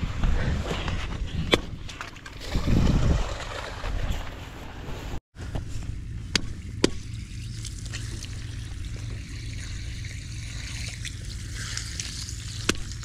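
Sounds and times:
water trickling and spurting: 0.8 - 4.8, 6.6 - 13.0.

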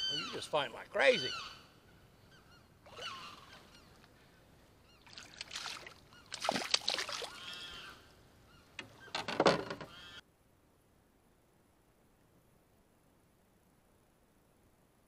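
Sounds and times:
fish splashing at water surface: 5.1 - 7.4.

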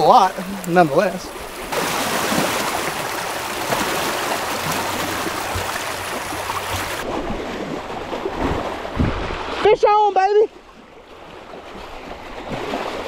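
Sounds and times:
waves lapping on rocky shore: 0.0 - 13.0.

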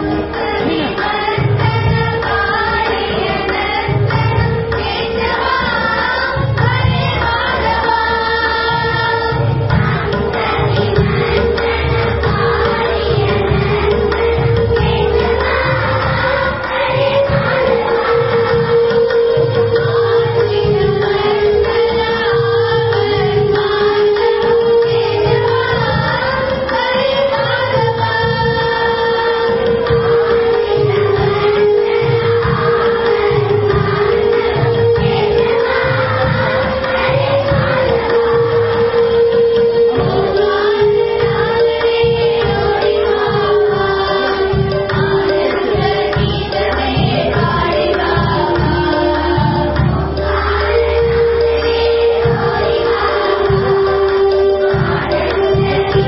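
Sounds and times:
children singing together: 0.0 - 56.0
hand-drum beats: 0.0 - 56.0.

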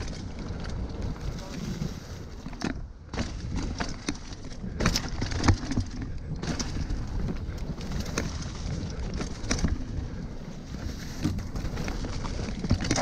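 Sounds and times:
bike rattling over bumps: 0.0 - 13.0
bike tyres rumbling on dirt trail: 0.0 - 13.0.

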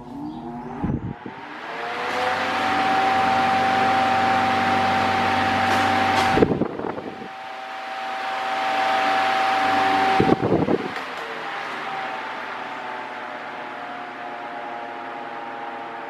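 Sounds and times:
fan rushing air: 0.0 - 16.0
fan clicks: 5.3 - 7.2, 8.8 - 12.4.

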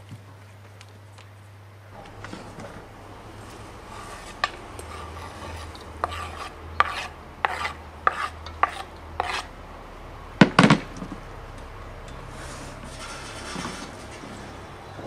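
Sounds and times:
spoon scraping cutting board: 3.4 - 9.5, 12.3 - 14.6.

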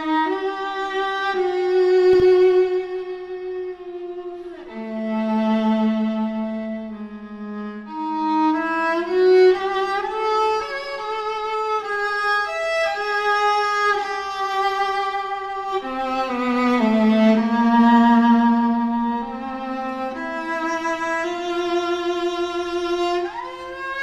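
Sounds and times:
solo viola bowed slowly: 0.0 - 24.0.

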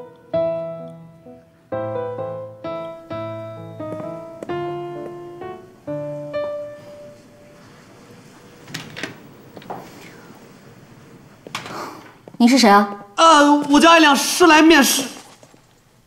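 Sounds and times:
gentle piano melody: 0.0 - 10.1.

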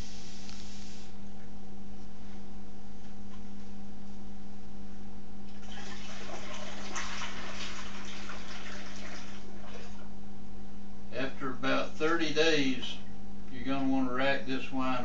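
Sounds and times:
liquid pouring into glass jug: 5.5 - 10.0.

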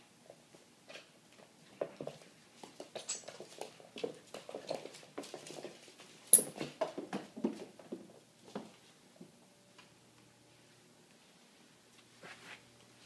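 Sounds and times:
puppy claws pattering on wood floor: 1.7 - 8.7.

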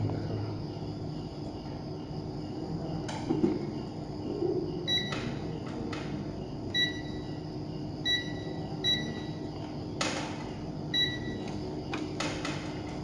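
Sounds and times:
steady low hum: 0.0 - 13.0
multimeter short high beeps: 6.8 - 7.3, 8.1 - 9.4, 11.0 - 11.5.

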